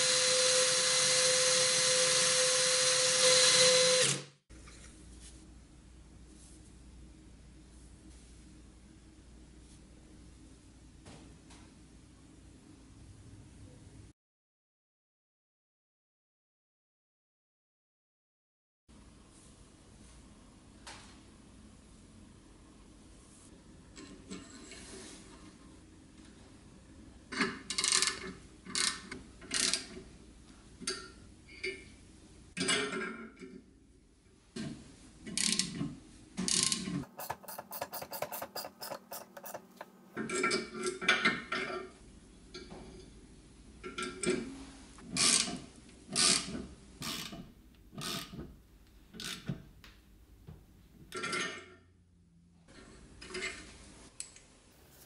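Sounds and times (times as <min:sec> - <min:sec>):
metal scraping: 0:37.0 - 0:40.1.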